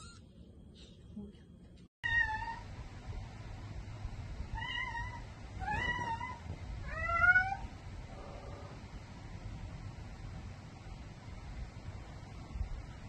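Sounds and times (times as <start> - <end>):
cat meowing: 0.0 - 0.2.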